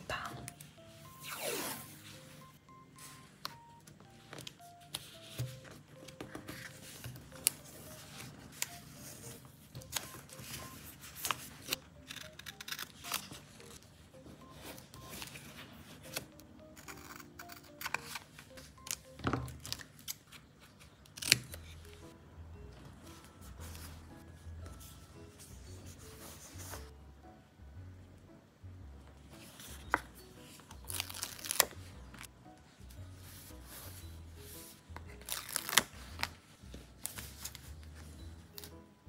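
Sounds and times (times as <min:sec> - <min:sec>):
soft background music: 0:00.0 - 0:39.0
scissors snipping paper tape: 0:11.6 - 0:13.4.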